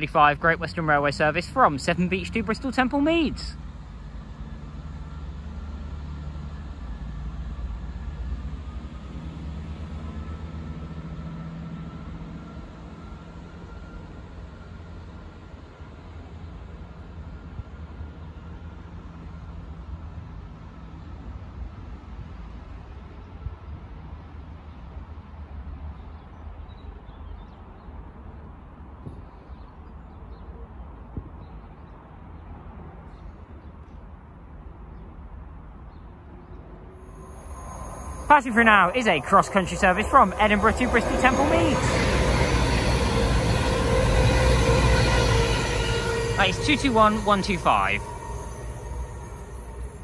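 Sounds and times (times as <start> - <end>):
train engine drone: 0.0 - 25.7, 36.5 - 50.0
faint high whine: 37.0 - 50.0.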